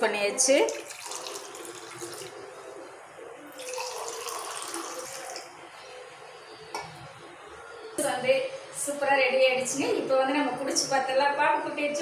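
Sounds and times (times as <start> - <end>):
juice pouring into glass: 0.7 - 2.4, 3.5 - 5.5.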